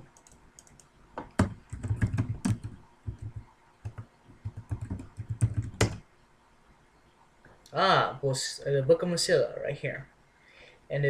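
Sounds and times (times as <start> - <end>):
computer keyboard typing: 0.0 - 6.0.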